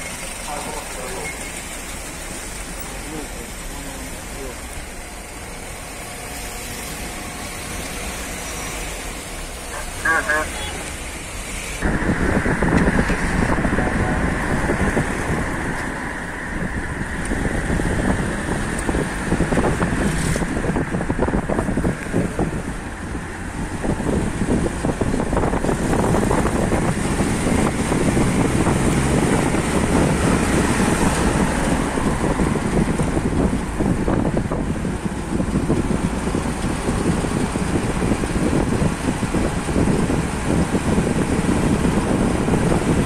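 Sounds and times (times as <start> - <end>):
car engines running: 0.0 - 43.0
wind buffeting microphone: 11.7 - 43.0.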